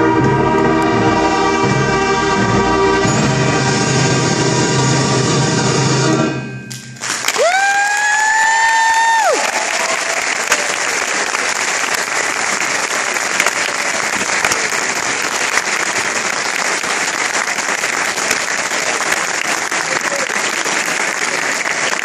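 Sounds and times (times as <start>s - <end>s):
concert band chord: 0.0s - 6.8s
audience applause: 7.0s - 22.0s.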